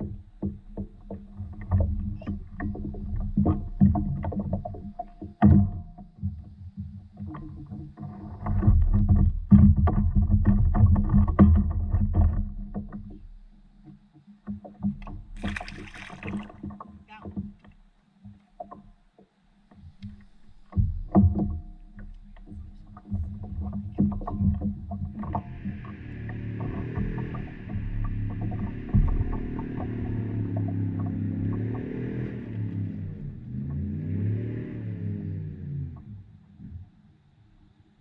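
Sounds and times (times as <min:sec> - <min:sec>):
knocks and bumps on board: 0:00.0 - 0:34.3
low rumble: 0:20.9 - 0:36.9.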